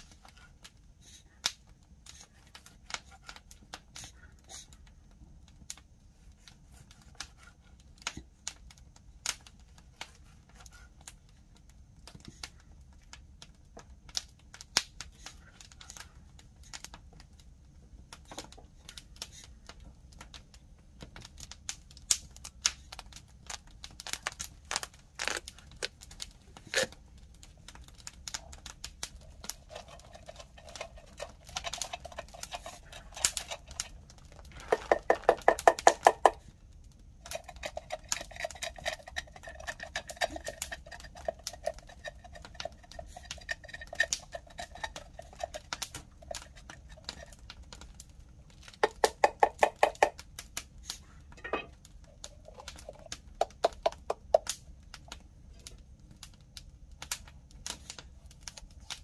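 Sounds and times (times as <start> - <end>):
wood fire crackling: 0.0 - 59.0
knife scraping papaya: 26.6 - 26.9, 29.5 - 34.0, 37.3 - 47.3.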